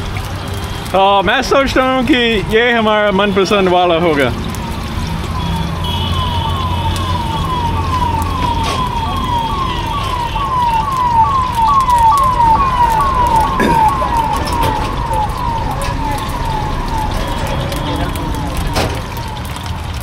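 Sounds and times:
electronic siren short falling whoops: 5.4 - 18.8.

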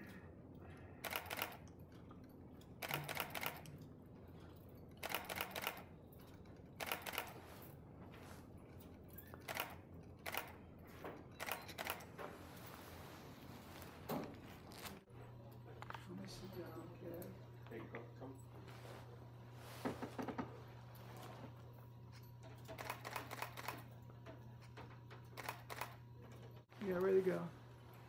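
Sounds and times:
low room hum: 0.0 - 28.0.

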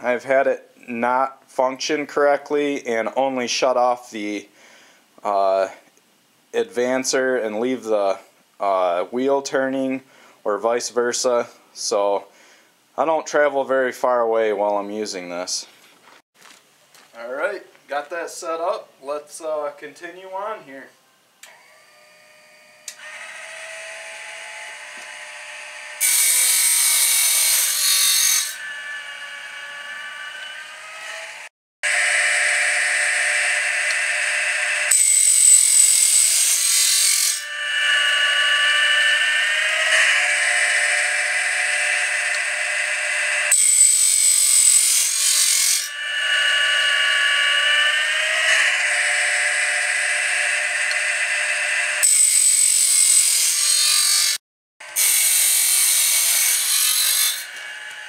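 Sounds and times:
grinding wheel motor whining: 28.4 - 45.1, 45.8 - 53.1, 57.4 - 58.0.

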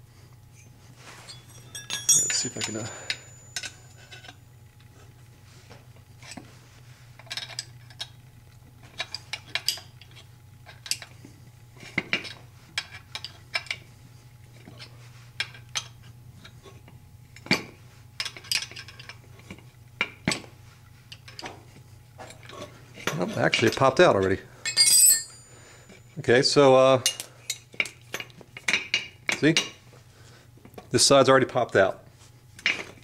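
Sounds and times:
steel wrenches clinking: 1.3 - 4.3, 24.6 - 26.0.

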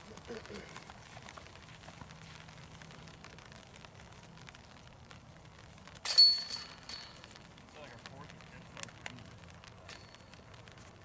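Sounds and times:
disc striking basket chains: 6.0 - 8.0, 9.8 - 10.5.

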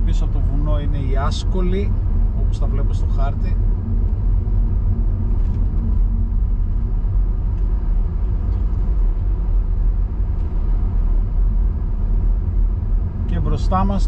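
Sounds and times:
car engine and tyre noise: 0.0 - 14.0.

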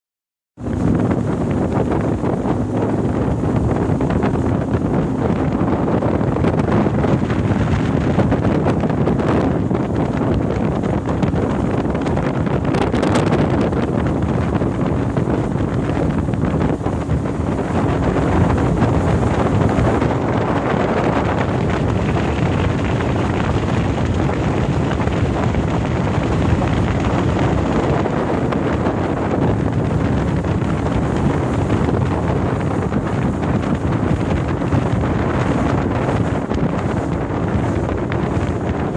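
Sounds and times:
outboard motor humming: 0.6 - 38.9
water rushing along hull: 0.6 - 38.9
wind buffeting microphone: 0.6 - 38.9.

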